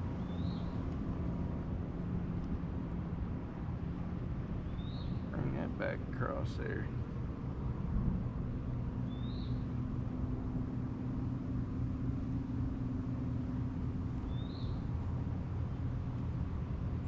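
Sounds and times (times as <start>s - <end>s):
bird chirping: 9.1s - 9.6s, 14.3s - 14.9s.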